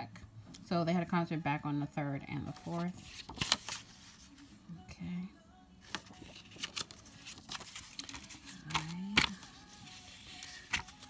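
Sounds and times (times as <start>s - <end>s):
paper pages rustling: 2.5s - 4.6s, 5.8s - 11.0s.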